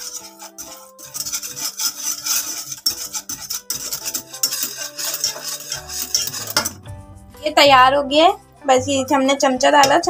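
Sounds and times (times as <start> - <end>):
whisk scraping a metal saucepan: 0.0 - 6.9
soft background music: 0.0 - 10.0.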